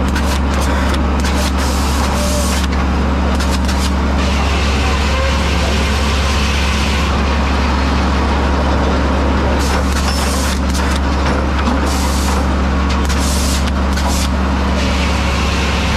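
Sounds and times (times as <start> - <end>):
sawmill machinery droning: 0.0 - 15.9
hiss: 11.8 - 12.4, 13.1 - 14.3.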